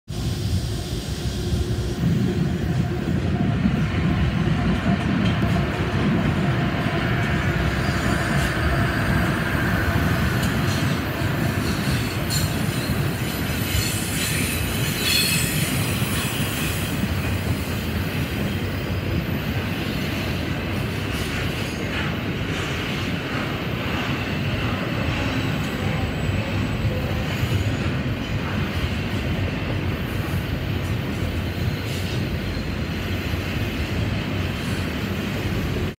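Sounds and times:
diesel locomotive engines: 0.1s - 35.9s
train wheels rumbling on rail: 0.1s - 35.9s
high wheel squeal: 10.5s - 17.6s.

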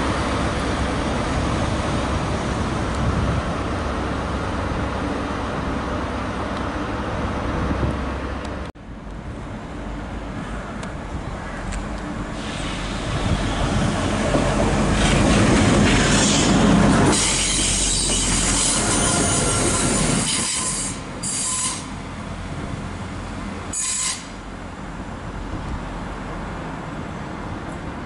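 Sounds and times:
diesel train running past: 0.0s - 28.0s
train wheels squealing: 16.1s - 22.0s, 23.7s - 24.4s.

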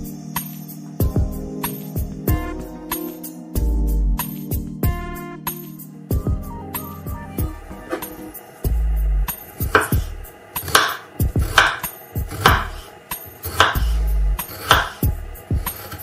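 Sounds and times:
knife slicing potato on wooden board: 9.7s - 16.0s.

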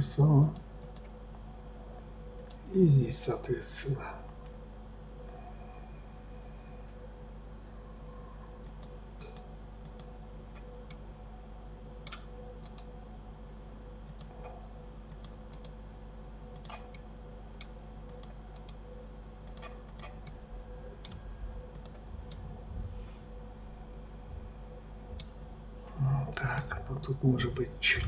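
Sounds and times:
faint steady hum: 0.0s - 28.0s
thin high whine: 0.0s - 28.0s
mouse and keyboard clicks: 16.6s - 17.0s, 19.5s - 20.4s.

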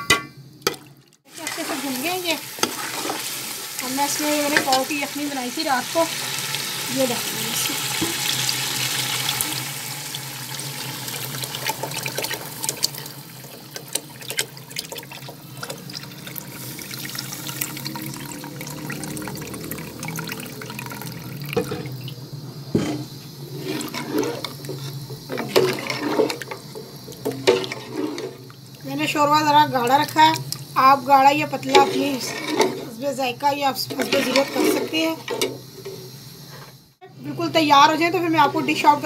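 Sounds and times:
stock pouring and splashing: 5.7s - 22.2s, 23.5s - 28.9s
broth crackling and bubbling: 8.4s - 22.4s.

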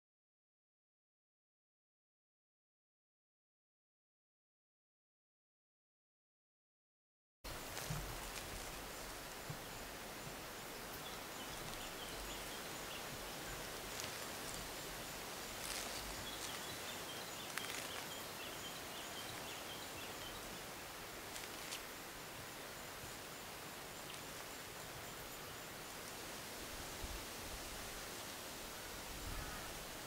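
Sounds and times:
light rustles and ticks: 7.5s - 20.1s, 21.3s - 21.9s
steady outdoor hiss: 7.5s - 30.0s.

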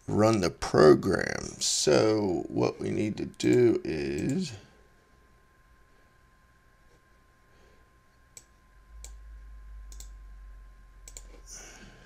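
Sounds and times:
faint steady whine: 0.0s - 12.0s
computer clicks: 8.3s - 9.2s, 9.9s - 10.2s, 11.0s - 11.4s.

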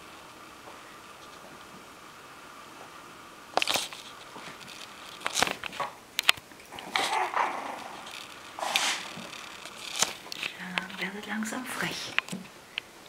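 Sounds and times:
puppies yapping: 6.7s - 9.9s.

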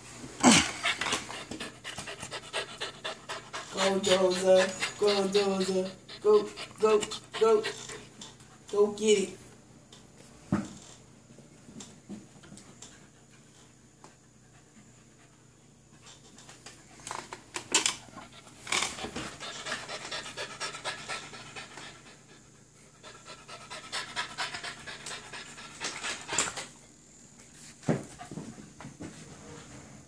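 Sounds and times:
puppy panting: 0.6s - 8.8s, 18.0s - 26.7s.

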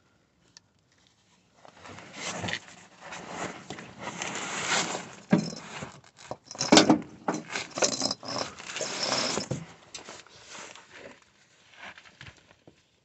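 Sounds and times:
metal clanks and scrapes: 5.3s - 9.6s.

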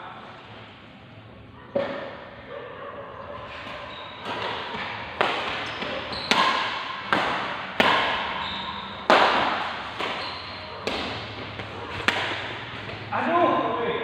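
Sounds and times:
badminton racket hitting shuttlecock: 4.2s - 13.1s.

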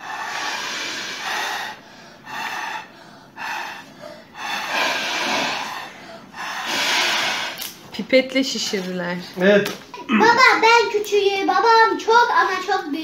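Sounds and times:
breath puffs through a straw: 0.0s - 7.7s.

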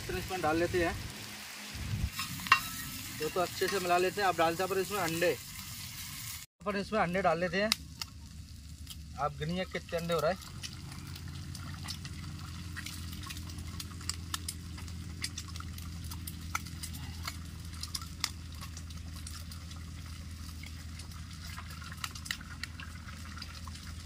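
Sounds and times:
food sizzling in pan: 0.0s - 6.5s
low hum: 10.4s - 24.0s.

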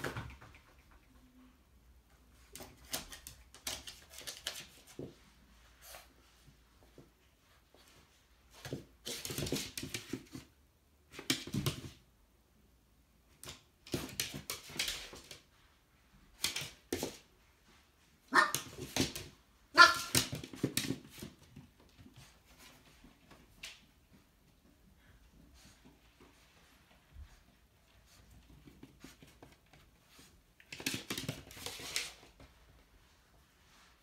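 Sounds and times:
puppy barking: 18.3s - 18.7s, 19.7s - 20.2s.

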